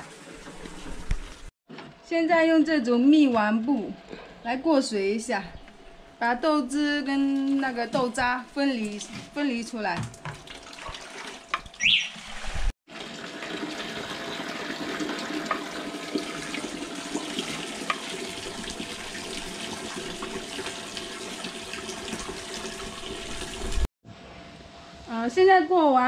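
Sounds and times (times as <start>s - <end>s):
liquid splashing trickle: 7.2s - 23.8s.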